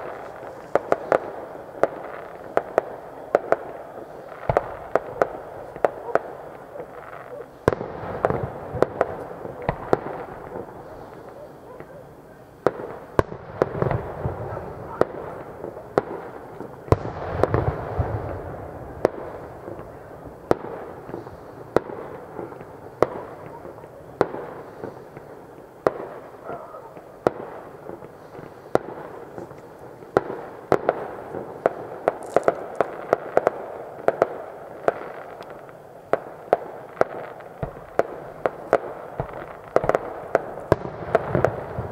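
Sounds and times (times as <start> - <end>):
fireworks bangs and crackles: 0.0 - 41.9
heavy firework booms: 4.3 - 6.6, 7.6 - 11.5, 12.6 - 29.4, 37.0 - 41.9.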